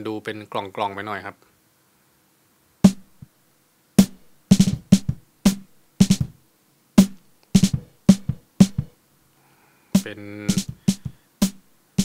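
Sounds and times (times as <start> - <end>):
snare drum hits: 2.8 - 3.2, 4.0 - 6.4, 7.0 - 8.9, 10.0 - 11.6.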